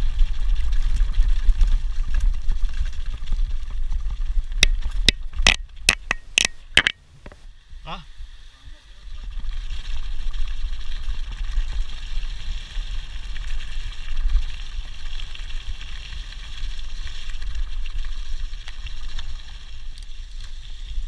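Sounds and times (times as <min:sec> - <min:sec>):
wind rumbling on microphone: 0:00.0 - 0:21.0
bike clicks and rattles: 0:00.1 - 0:07.4.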